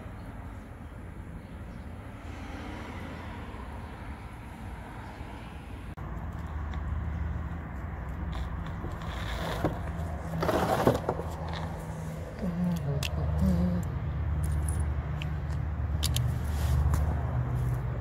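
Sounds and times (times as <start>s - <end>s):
metallic clicks of screws: 14.4s - 16.4s.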